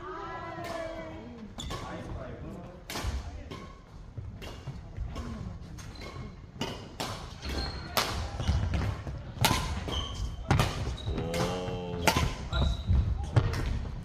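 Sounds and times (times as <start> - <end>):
shoe squeaks on court floor: 1.6 - 2.0, 5.8 - 6.8, 7.4 - 8.8, 9.6 - 11.3, 12.5 - 13.2
racket hitting shuttlecock: 2.9 - 3.8, 4.4 - 12.7.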